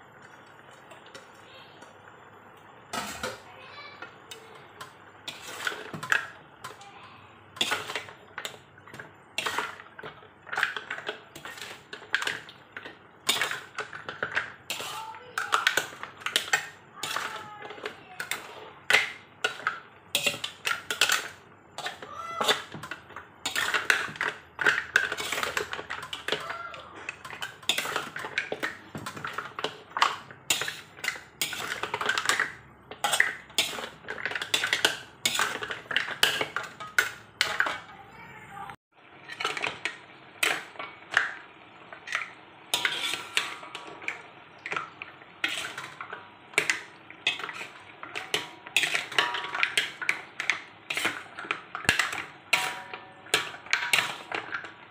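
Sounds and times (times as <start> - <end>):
metal spatula scraping a wok: 5.2 - 6.8, 7.6 - 37.9, 42.1 - 44.1, 45.4 - 54.5.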